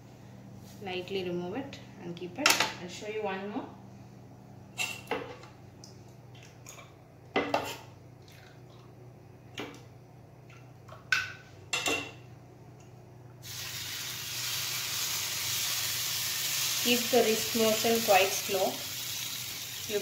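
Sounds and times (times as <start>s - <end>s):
batter sizzling on griddle: 13.4s - 20.0s.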